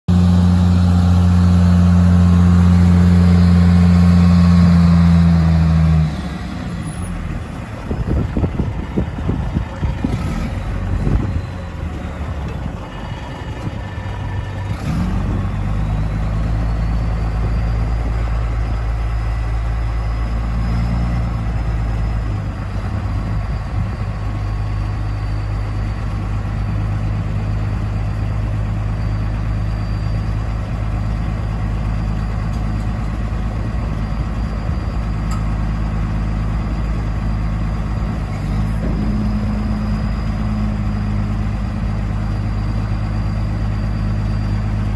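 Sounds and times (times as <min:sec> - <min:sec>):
dump truck diesel engine: 0:00.1 - 0:44.9.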